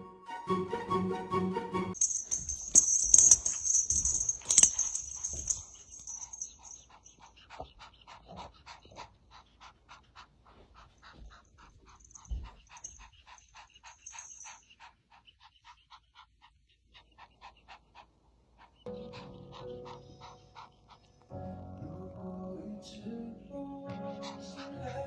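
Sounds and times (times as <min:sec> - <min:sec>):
kitten panting: 0:05.2 - 0:21.1.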